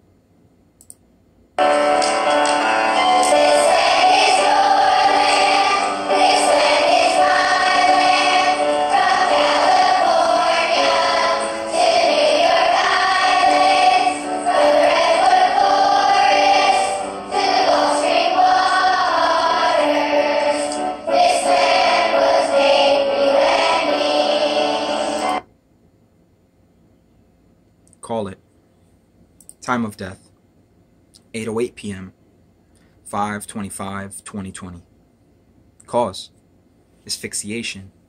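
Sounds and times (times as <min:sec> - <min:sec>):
choir-like singing: 0:01.6 - 0:25.4.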